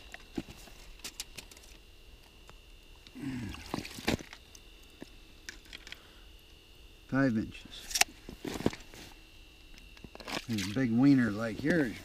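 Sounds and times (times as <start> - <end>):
water sloshing and trickling: 3.4 - 4.4.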